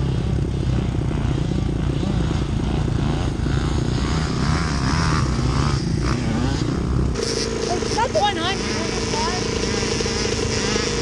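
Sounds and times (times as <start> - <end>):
dirt bike engine idling: 0.0 - 11.0
distant dirt bike revving: 0.0 - 11.0.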